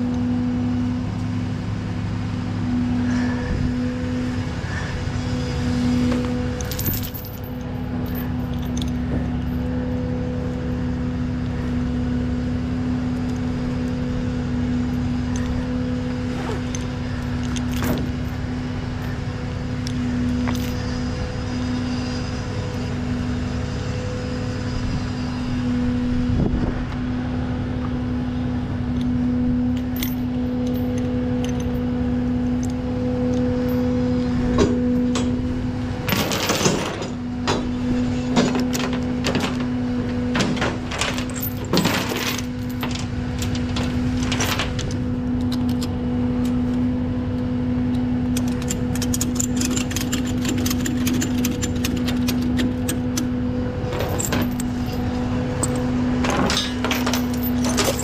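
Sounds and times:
truck engine humming: 0.0 - 58.0
chains rattling: 6.6 - 9.7, 29.8 - 31.9, 36.1 - 37.2, 40.9 - 45.0, 48.4 - 53.0, 53.9 - 58.0.

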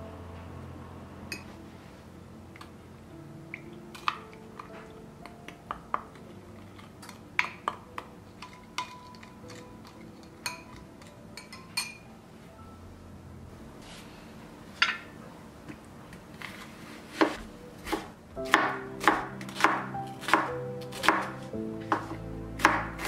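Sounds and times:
spoon clinking against glass bowl: 8.4 - 12.1.

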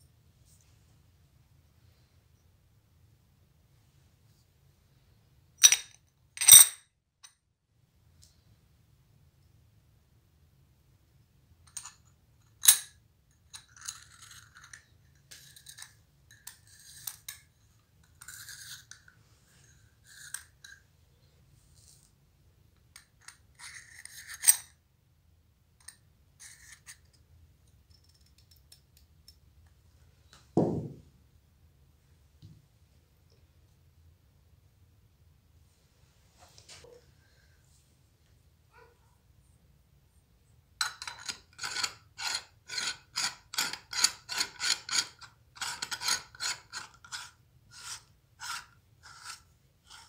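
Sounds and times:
metal tool scraping metal: 18.1 - 19.1, 23.2 - 24.7, 40.8 - 50.0
dull thump: 30.6 - 31.1.

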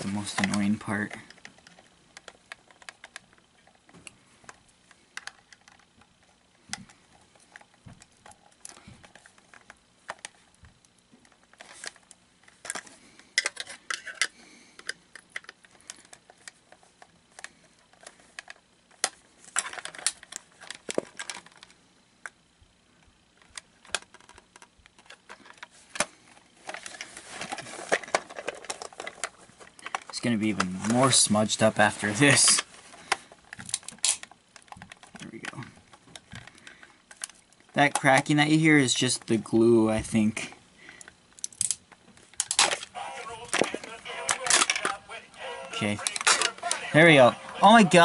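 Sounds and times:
plastic cracking and scraping: 0.0 - 21.8, 23.4 - 31.3, 31.9 - 38.4, 40.9 - 48.0
plastic clicks and creaks: 0.0 - 22.4, 23.4 - 26.1, 32.5 - 38.5.

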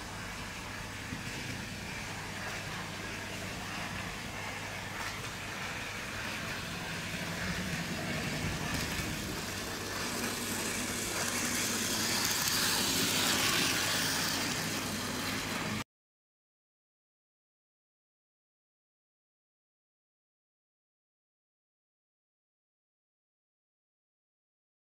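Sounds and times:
model train motor whirring: 6.1 - 15.8.

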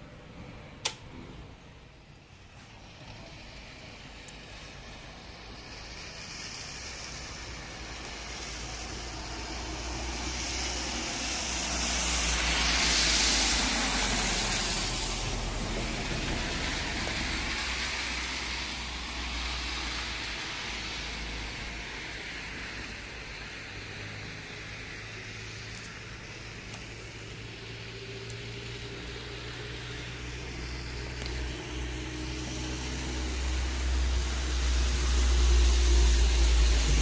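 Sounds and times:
car tyres hissing on slush: 2.4 - 37.0
steady low rumble: 25.2 - 37.0.

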